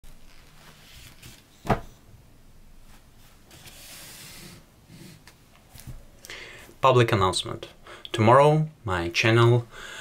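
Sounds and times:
paper napkin rustling: 0.1s - 1.7s.

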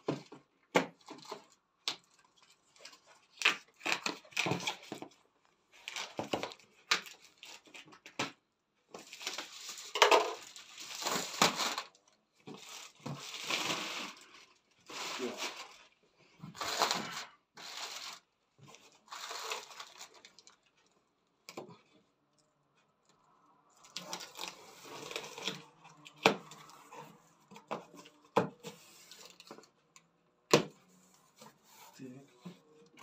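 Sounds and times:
cardboard scraping and rustling: 16.5s - 20.3s.

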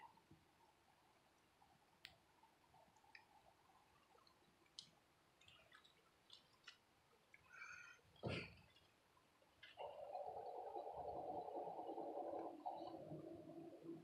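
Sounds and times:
faint clicks: 1.4s - 2.3s, 2.9s - 3.4s, 4.0s - 9.0s, 9.6s - 10.7s.

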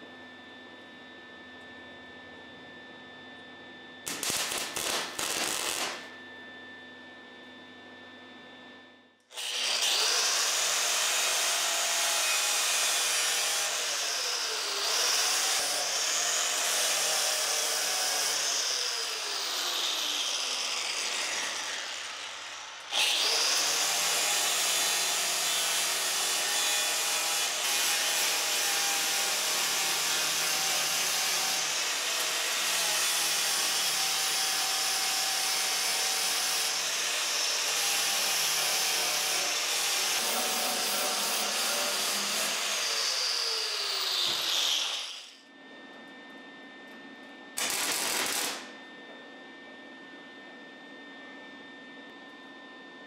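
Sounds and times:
angle grinder grinding steel: 9.3s - 45.4s.

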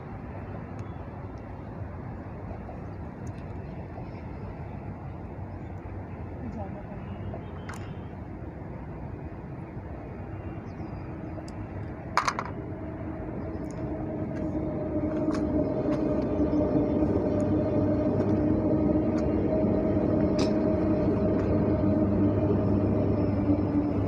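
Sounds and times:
vehicle motor drone: 10.1s - 24.0s
steady tone: 12.3s - 24.0s.

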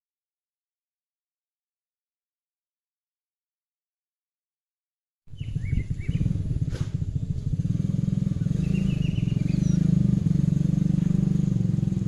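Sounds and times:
bird chirps: 5.3s - 7.4s, 8.2s - 10.3s
engine idling: 5.4s - 12.0s.

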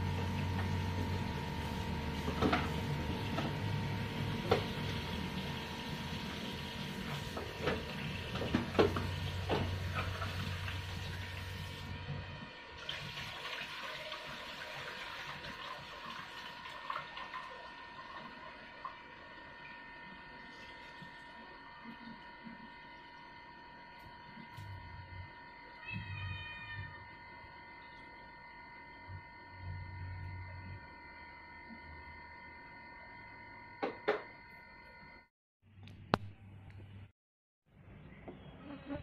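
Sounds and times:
water running at a sink: 4.2s - 12.0s, 12.7s - 22.8s.

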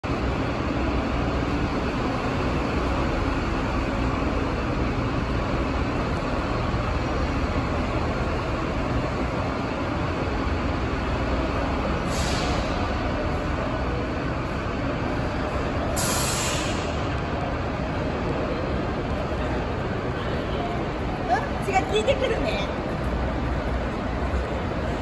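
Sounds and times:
low rumble of bus terminal: 0.0s - 25.0s
short hiss: 12.1s - 12.7s, 16.0s - 16.9s.

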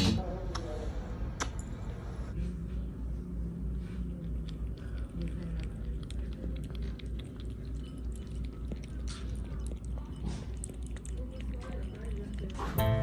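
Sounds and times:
cat eating wet clicks: 3.6s - 12.9s.

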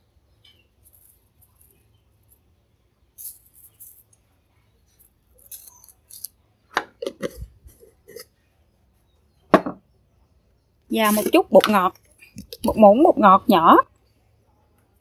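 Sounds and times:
plastic spoon scraping granules in jar: 10.9s - 13.1s.

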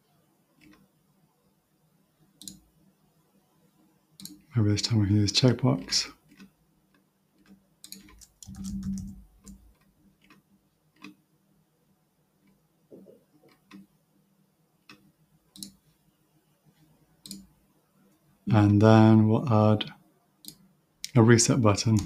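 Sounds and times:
mouse and keyboard clicks: 7.4s - 9.6s, 15.6s - 15.8s.

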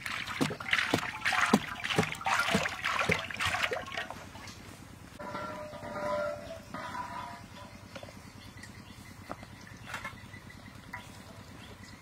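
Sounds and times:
jug glugging: 0.0s - 4.5s.

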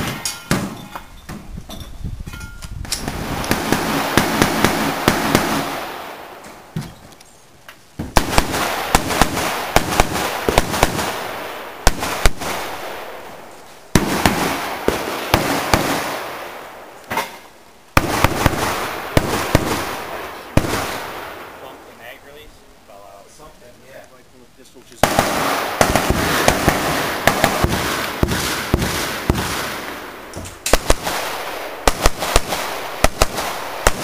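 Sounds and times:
rapid rifle shots with echo: 3.0s - 6.3s, 8.2s - 13.2s, 13.9s - 16.6s, 18.0s - 21.8s, 25.0s - 34.0s.

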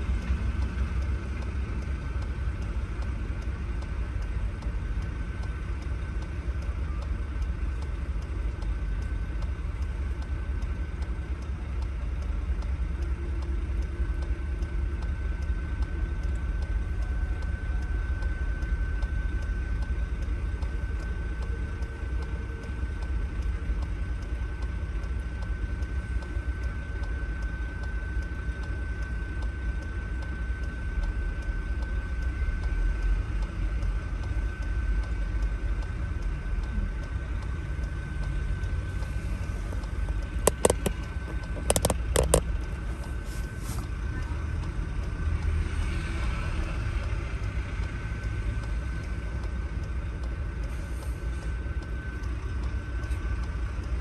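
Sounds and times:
low engine rumble: 0.0s - 54.0s
sharp clicks: 39.8s - 42.5s.

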